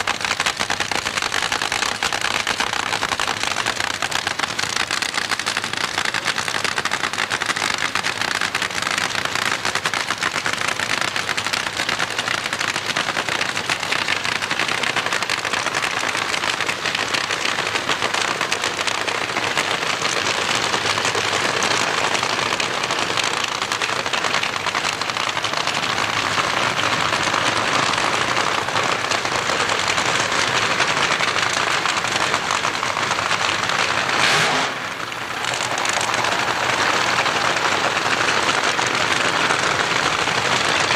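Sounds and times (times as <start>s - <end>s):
racing engine crackling: 0.0s - 40.9s.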